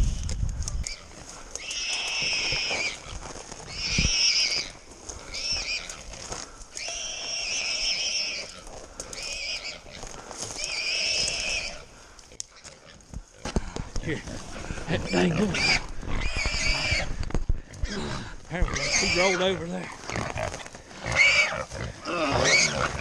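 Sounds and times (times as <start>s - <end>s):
hog squealing: 1.6s - 3.1s, 3.7s - 4.7s, 9.2s - 9.8s, 15.0s - 17.1s, 18.6s - 20.2s, 21.1s - 23.0s.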